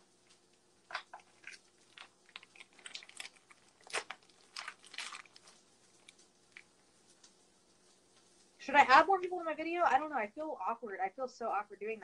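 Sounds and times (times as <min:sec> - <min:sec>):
plastic wrapper crinkling: 0:00.2 - 0:09.4.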